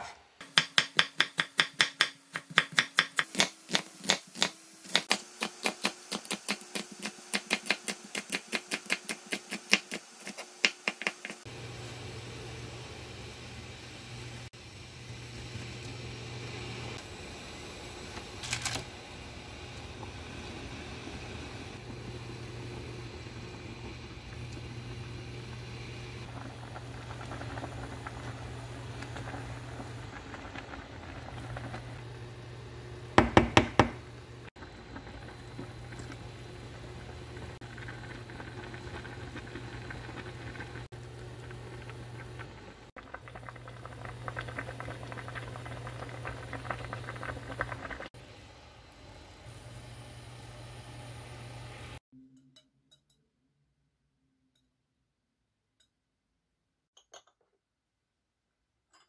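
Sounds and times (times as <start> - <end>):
broth bubbling in saucepan: 5.0 - 52.0.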